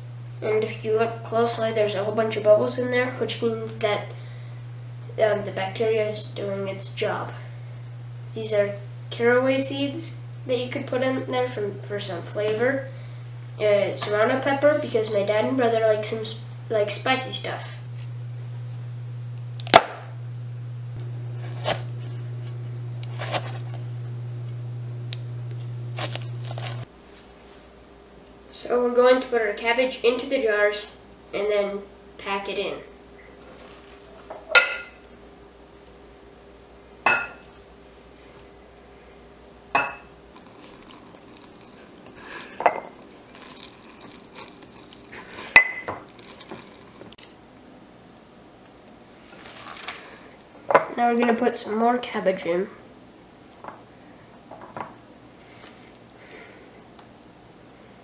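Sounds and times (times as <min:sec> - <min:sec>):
steady low hum: 0:00.0 - 0:58.0
cabbage rustling: 0:21.2 - 0:22.4, 0:23.0 - 0:23.8, 0:25.6 - 0:26.9, 0:40.4 - 0:47.2
glass jar clinking: 0:42.6 - 0:42.9, 0:45.5 - 0:46.0.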